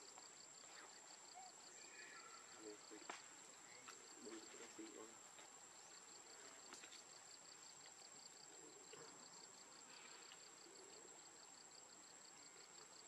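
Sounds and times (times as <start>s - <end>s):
insect chirping: 0.0s - 13.0s.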